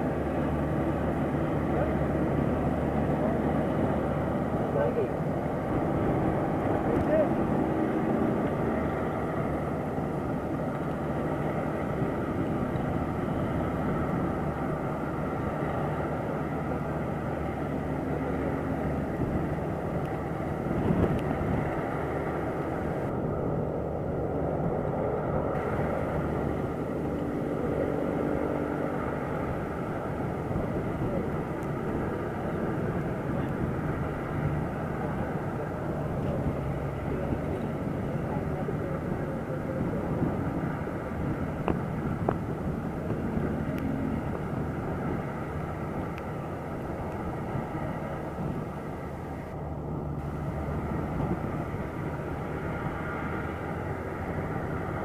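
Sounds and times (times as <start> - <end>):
combine harvester running: 0.0 - 55.0.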